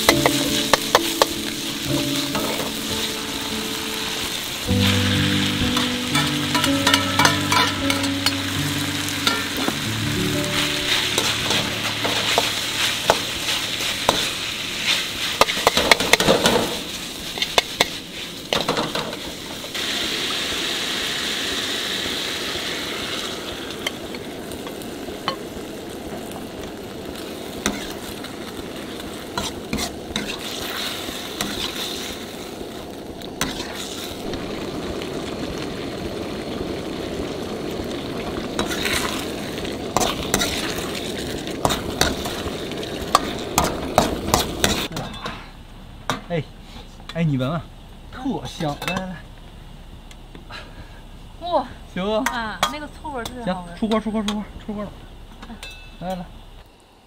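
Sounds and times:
food sizzling in pan: 0:00.0 - 0:56.7
spatula scraping pan: 0:09.2 - 0:19.2, 0:29.4 - 0:32.1, 0:33.4 - 0:34.1.

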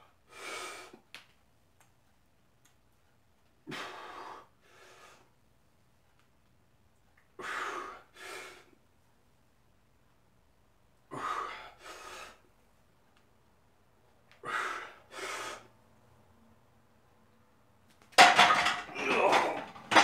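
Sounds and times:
man breathing hard: 0:07.4 - 0:08.8, 0:11.1 - 0:12.5, 0:14.4 - 0:15.8.

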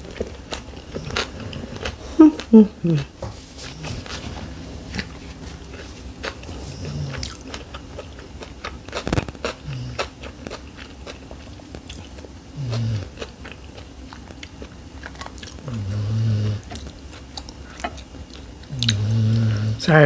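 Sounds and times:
low closed-mouth hums: 0:00.0 - 0:20.0
chewing with wet mouth clicks: 0:06.8 - 0:15.8, 0:16.7 - 0:19.1.

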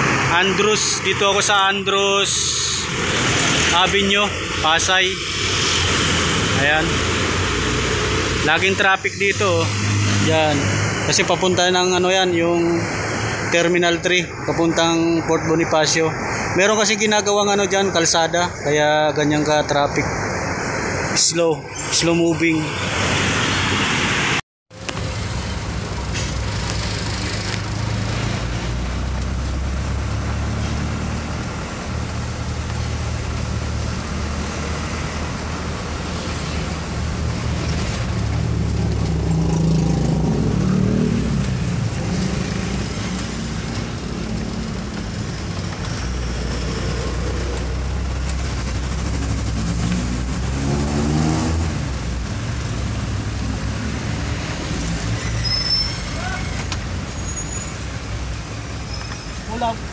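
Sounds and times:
road and traffic noise: 0:00.0 - 0:59.9
diesel truck engine running: 0:24.7 - 0:50.9.

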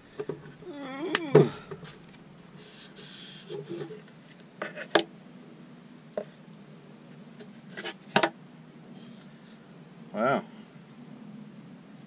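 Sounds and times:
plastic tub scraping and crackling: 0:01.2 - 0:05.1.

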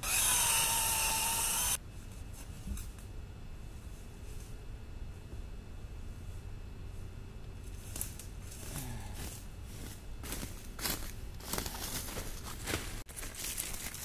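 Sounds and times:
footsteps crunching through dry leaves: 0:07.7 - 0:14.0.

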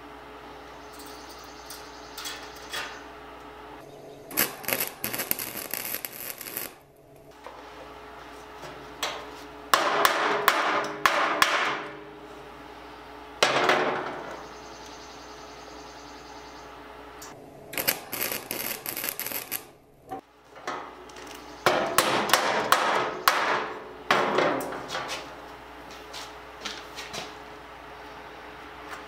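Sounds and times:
welder crackle: 0:04.3 - 0:07.4, 0:17.2 - 0:19.8.

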